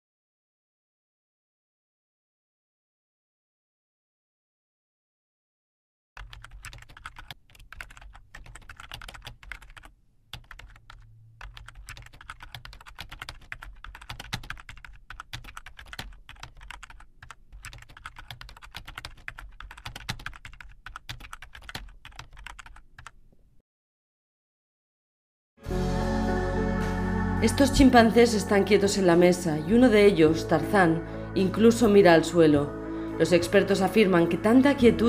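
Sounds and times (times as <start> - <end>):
keyboard typing: 6.2 - 23.2.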